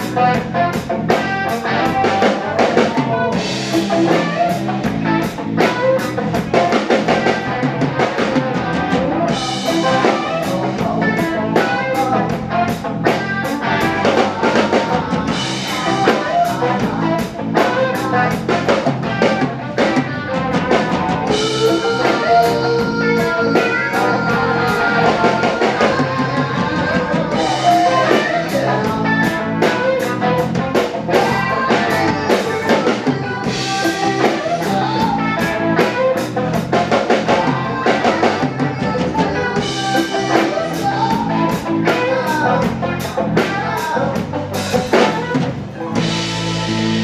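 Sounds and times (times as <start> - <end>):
bass guitar: 0.0 - 47.0
drum kit beat: 0.0 - 47.0
electric guitar: 0.0 - 47.0.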